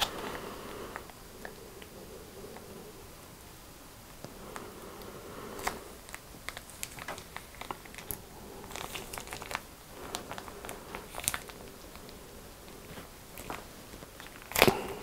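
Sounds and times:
plastic packet crinkling: 0:05.6 - 0:15.0.

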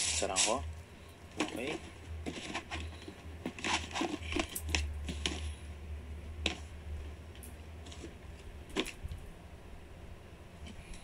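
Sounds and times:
sneaker rustling in shoebox: 0:01.4 - 0:05.6.

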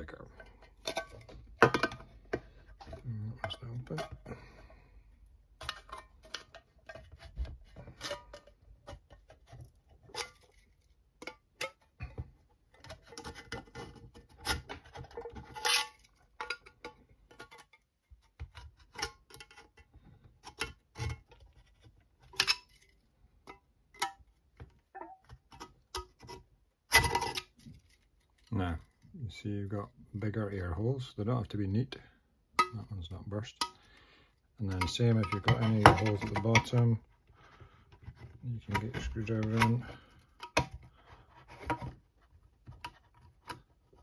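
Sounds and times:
screwdriver scraping tin can metal: 0:12.9 - 0:17.7, 0:34.6 - 0:37.0.

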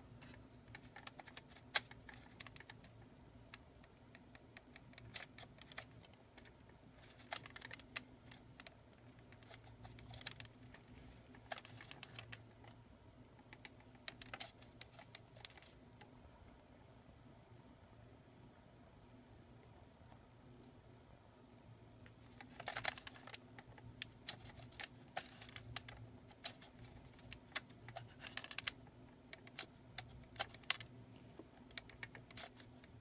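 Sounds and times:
faint low hum: 0:00.0 - 0:33.0
plastic clicks and rattles: 0:00.2 - 0:12.8, 0:13.4 - 0:16.1, 0:22.1 - 0:33.0.

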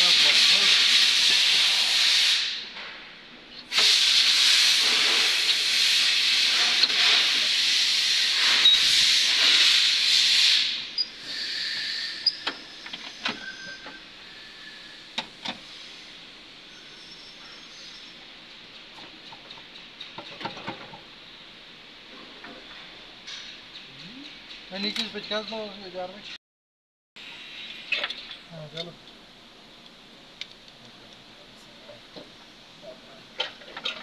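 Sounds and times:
loud steady air hiss: 0:00.0 - 0:18.9, 0:27.2 - 0:30.5.

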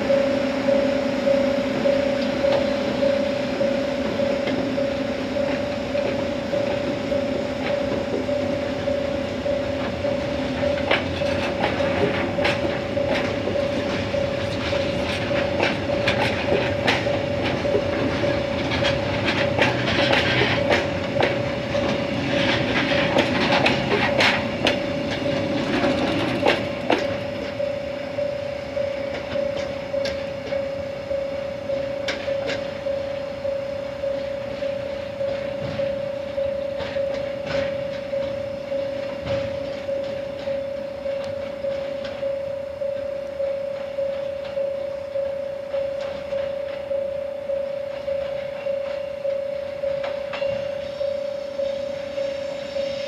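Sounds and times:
steady high hum: 0:00.0 - 0:16.2, 0:26.6 - 0:53.0
wagon wheels rumbling on track: 0:04.8 - 0:28.0
wheels clacking over rail joints: 0:05.4 - 0:27.7, 0:36.7 - 0:42.3
hiss: 0:52.0 - 0:53.0.

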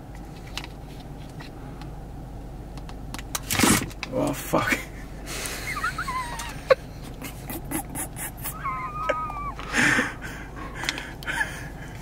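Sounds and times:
high squeaky whines: 0:08.3 - 0:09.7.

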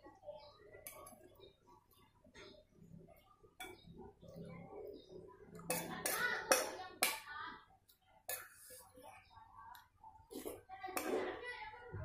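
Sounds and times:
spoon scraping a plate: 0:05.6 - 0:06.8, 0:08.3 - 0:09.1, 0:10.3 - 0:11.3.

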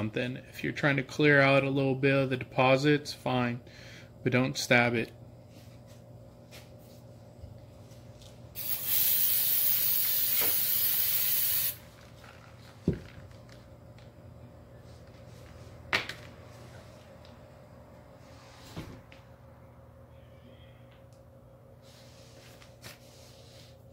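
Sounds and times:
aerosol spray hissing: 0:08.6 - 0:11.8.

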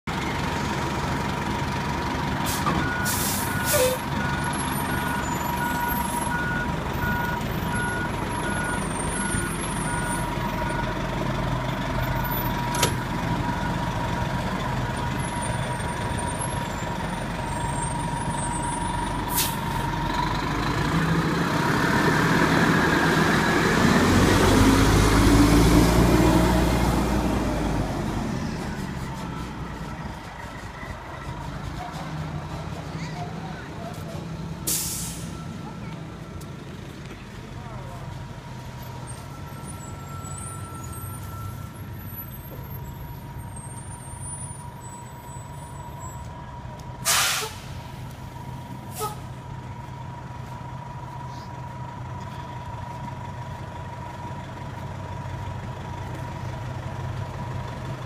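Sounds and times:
fire engine idling: 0:00.1 - 0:20.9, 0:28.6 - 0:58.0
truck engine revving: 0:00.4 - 0:35.0
air brake hisses: 0:02.4 - 0:04.0, 0:19.3 - 0:19.8, 0:34.6 - 0:35.4, 0:47.0 - 0:47.9, 0:48.9 - 0:49.3
reversing alarm beeping: 0:02.7 - 0:11.0, 0:34.7 - 0:37.0, 0:38.8 - 0:42.6.

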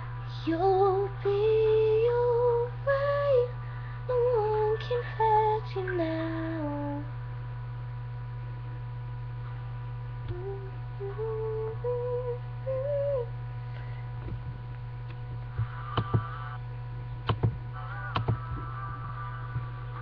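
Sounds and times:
low electrical hum: 0:00.0 - 0:20.0
sharp clicks and knocks: 0:17.2 - 0:18.7.

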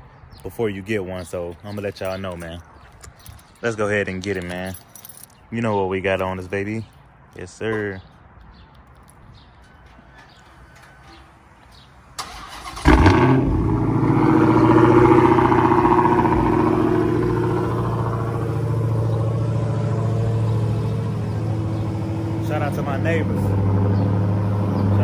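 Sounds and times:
car engine starting and idling: 0:12.2 - 0:25.0.

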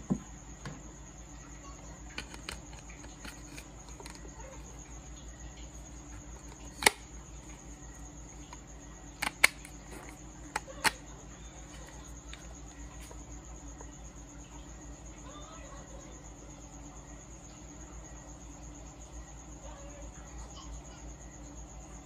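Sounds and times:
plastic clicks and knocks: 0:02.1 - 0:04.2, 0:06.4 - 0:07.0, 0:09.2 - 0:11.0.

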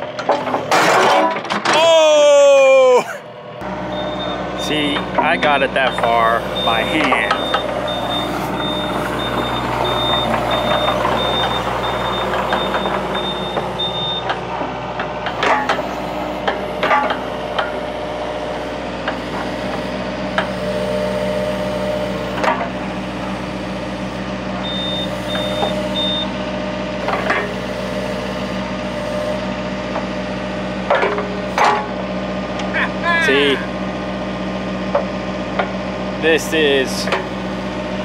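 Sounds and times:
diesel engine idling: 0:01.8 - 0:38.0
alarm beeping in quick pulses: 0:03.9 - 0:04.4, 0:05.3 - 0:14.3.

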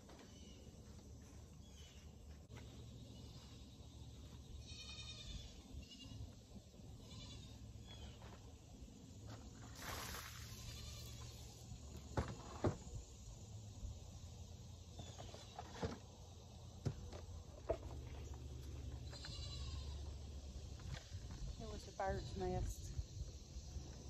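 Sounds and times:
livestock bleating faintly: 0:04.6 - 0:06.2, 0:07.0 - 0:07.6, 0:19.1 - 0:20.0.

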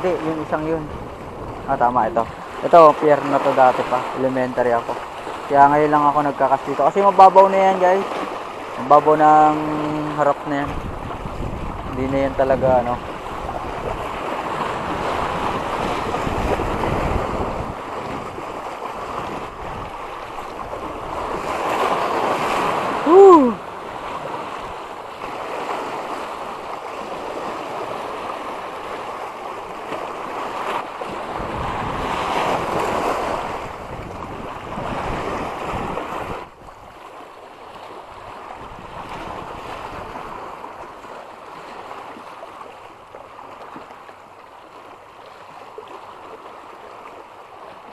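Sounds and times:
wind buffeting microphone: 0:00.0 - 0:02.7, 0:10.6 - 0:24.8, 0:31.1 - 0:37.0, 0:38.2 - 0:40.5
sea waves washing: 0:00.0 - 0:47.9.

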